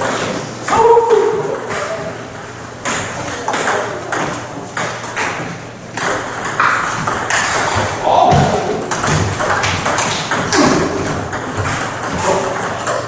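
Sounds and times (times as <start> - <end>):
table tennis ball bouncing: 0.0 - 13.0.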